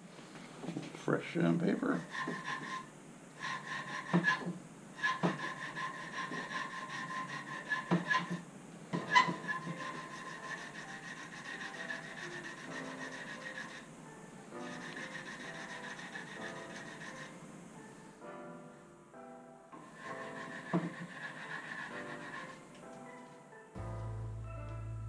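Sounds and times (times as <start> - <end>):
sandpaper rubbing on metal: 1.9 - 8.4, 9.1 - 13.9, 14.6 - 17.3, 19.9 - 22.6.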